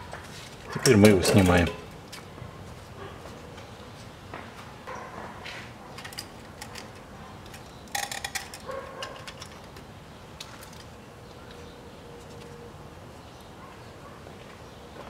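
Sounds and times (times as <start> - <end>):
metal tools clinking: 0.7 - 2.0, 6.0 - 10.9.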